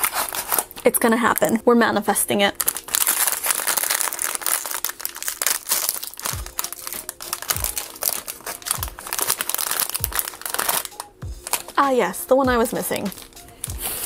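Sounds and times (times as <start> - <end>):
foil pouch crinkling: 0.0 - 1.6, 2.6 - 14.0
soft low thumps: 11.2 - 11.5.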